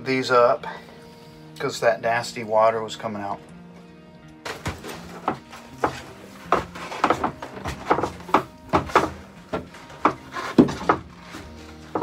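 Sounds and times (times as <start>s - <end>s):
metal box knocking against wood: 4.4s - 11.2s.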